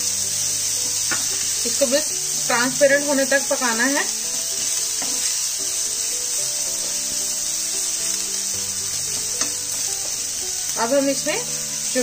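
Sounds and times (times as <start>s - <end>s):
onion sizzling in hot oil: 0.0s - 12.0s
soft background music: 0.0s - 12.0s.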